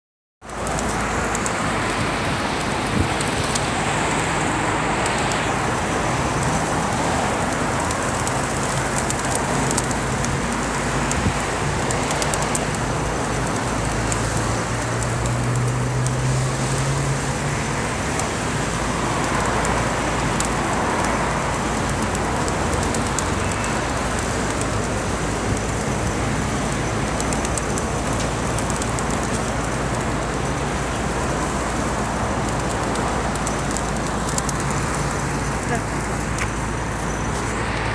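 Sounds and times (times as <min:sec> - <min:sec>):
road traffic hum: 0:00.4 - 0:37.9
vehicle engine hum: 0:00.4 - 0:37.9
pigeons flapping and shuffling: 0:00.5 - 0:37.8.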